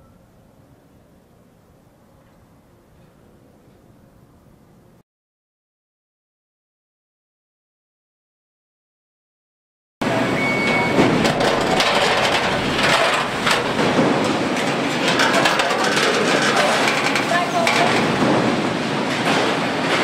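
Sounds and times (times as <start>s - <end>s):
steady machinery noise: 10.0s - 20.0s
steel panels clanking and rattling: 10.0s - 20.0s.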